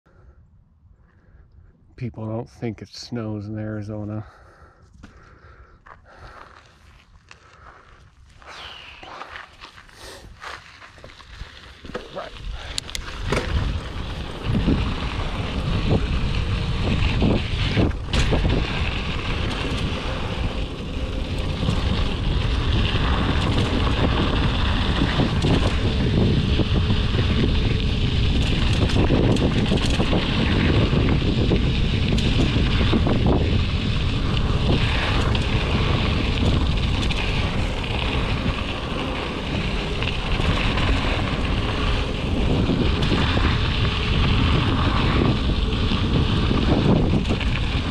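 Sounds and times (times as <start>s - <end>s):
wind noise on microphone: 3.6s - 47.9s
bike clicks and rattles: 4.8s - 47.9s
tyres crunching on gravel: 4.9s - 47.9s.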